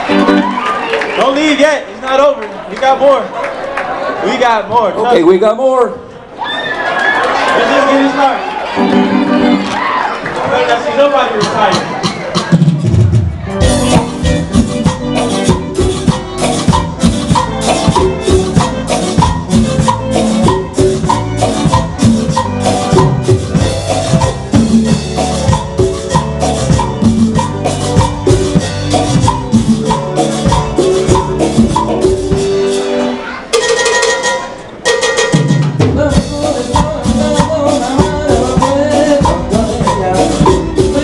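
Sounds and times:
keyboard chords and melody: 0.0 - 0.9, 8.7 - 10.0, 11.4 - 41.0
drum kit beat: 11.3 - 41.0.

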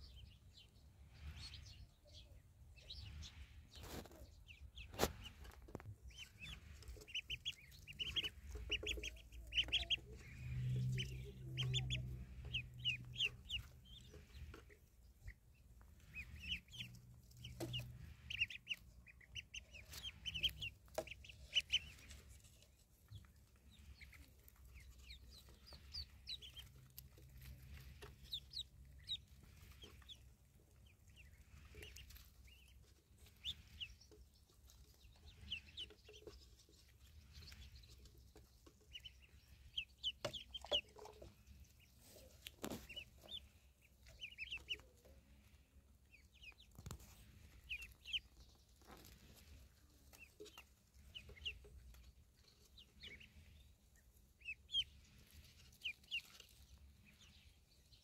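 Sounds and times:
ducklings peeping: 0.0 - 58.0.

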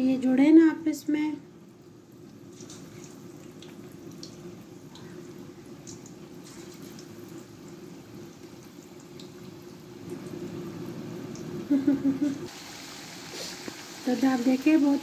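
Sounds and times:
food deep-frying in oil: 1.6 - 15.0
oil popping and crackling: 2.2 - 10.4, 12.5 - 15.0.

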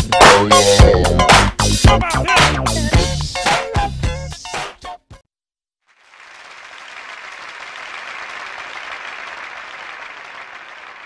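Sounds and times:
crowd applauding: 5.9 - 11.0.

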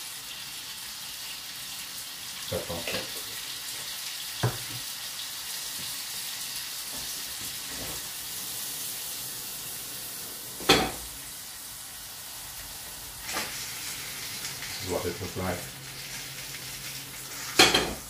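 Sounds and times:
fish sizzling in pans: 0.0 - 18.0
knock: 4.4 - 4.8.

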